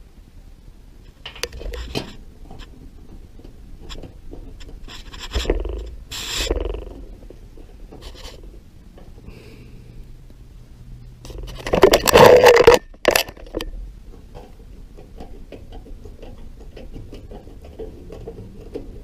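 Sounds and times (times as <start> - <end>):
metal scraping and clicking: 11.2 - 13.8.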